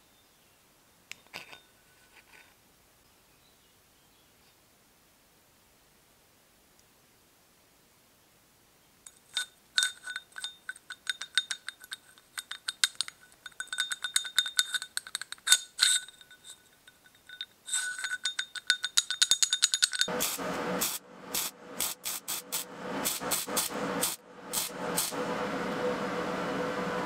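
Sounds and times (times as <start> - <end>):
ball bearing rattling on a shaft: 9.1 - 20.3.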